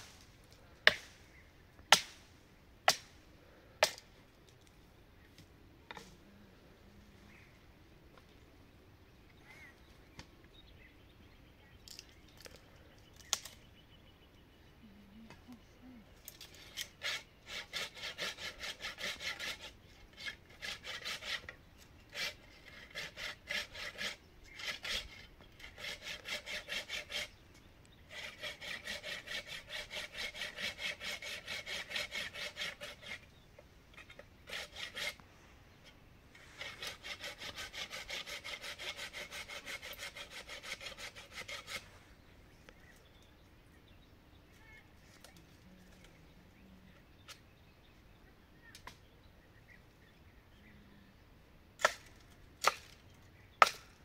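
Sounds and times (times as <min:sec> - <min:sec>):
hand saw cutting wood: 0:16.4 - 0:27.4, 0:28.1 - 0:35.2, 0:36.4 - 0:41.9, 0:51.8 - 0:52.9, 0:53.6 - 0:53.9.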